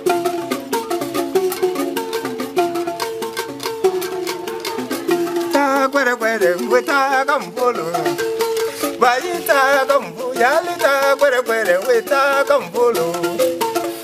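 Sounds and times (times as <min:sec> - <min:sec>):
cane panpipe tones: 0:00.0 - 0:14.0
rhythmic rattle: 0:00.0 - 0:14.0
man singing: 0:05.4 - 0:14.0.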